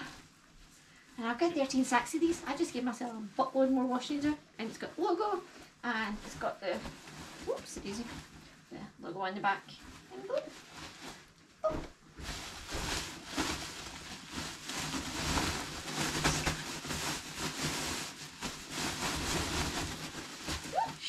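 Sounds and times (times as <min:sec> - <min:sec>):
clothing rustling: 0:00.0 - 0:08.7, 0:09.7 - 0:21.0
loud crinkles: 0:06.1 - 0:08.6, 0:09.7 - 0:21.0.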